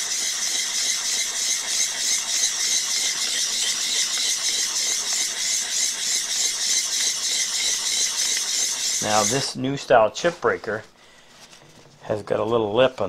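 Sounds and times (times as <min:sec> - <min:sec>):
metal scraping on sharpening stone: 0:00.0 - 0:09.5.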